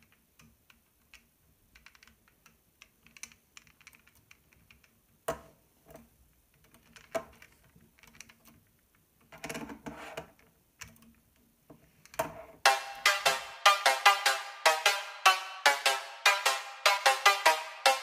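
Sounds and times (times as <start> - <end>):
plastic toy parts clicking: 0.0 - 4.9, 6.5 - 9.6
electronic music: 12.6 - 18.0.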